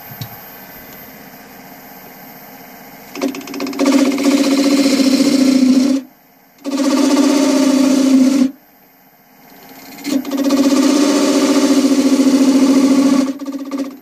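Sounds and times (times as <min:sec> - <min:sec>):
lathe tool cutting wood: 0:03.2 - 0:06.0, 0:06.6 - 0:08.5, 0:09.6 - 0:14.0.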